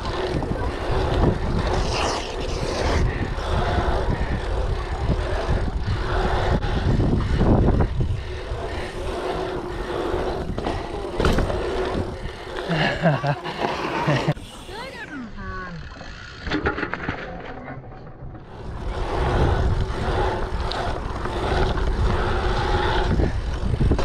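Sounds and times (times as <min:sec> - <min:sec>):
wind buffeting microphone: 0:00.0 - 0:13.4, 0:18.4 - 0:24.0
bike tyre rumble on asphalt: 0:00.0 - 0:15.0, 0:18.2 - 0:24.0
bike knocks and rattles: 0:10.4 - 0:12.2.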